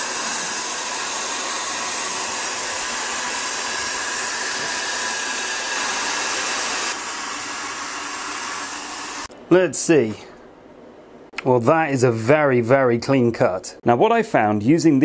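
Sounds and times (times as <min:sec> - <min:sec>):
compressed air hissing: 0:00.0 - 0:09.3.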